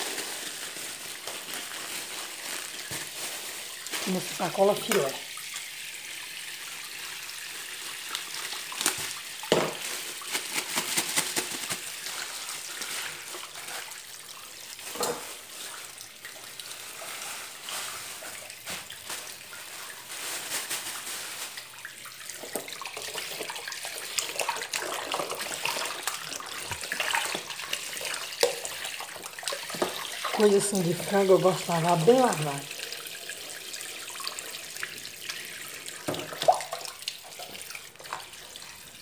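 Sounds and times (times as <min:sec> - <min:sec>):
plastic bags crinkling: 0:00.0 - 0:05.1, 0:08.4 - 0:22.6, 0:23.5 - 0:28.8
water splashing in metal sink: 0:00.0 - 0:39.0.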